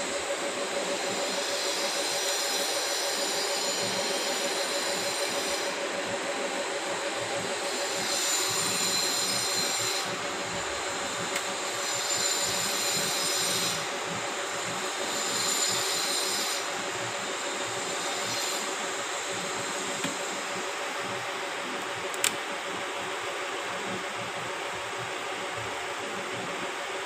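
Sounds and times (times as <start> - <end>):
steady mechanical hum: 0.0 - 27.0.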